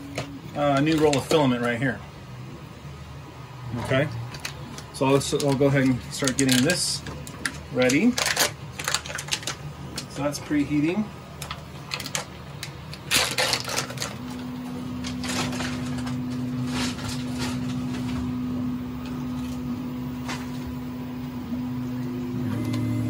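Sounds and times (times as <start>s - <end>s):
cooling fan humming: 0.0s - 23.0s
clicks and rustles: 3.8s - 10.2s, 11.4s - 18.3s.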